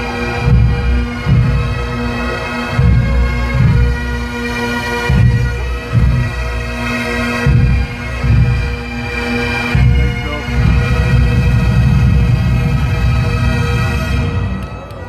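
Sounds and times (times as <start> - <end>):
bagpipes playing a tune: 0.0 - 15.0
deep irregular thumping: 0.4 - 4.3, 5.0 - 9.1.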